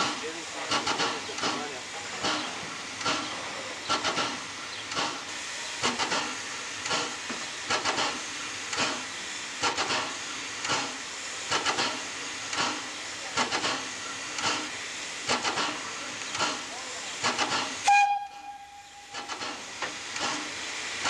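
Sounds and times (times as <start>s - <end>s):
steam air pump beating: 0.0s - 21.0s
steam hissing: 0.0s - 21.0s.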